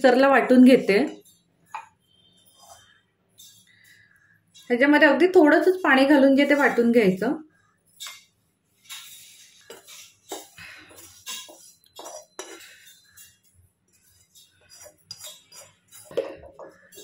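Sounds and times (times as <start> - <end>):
spatula scraping steel pan: 8.9 - 17.0.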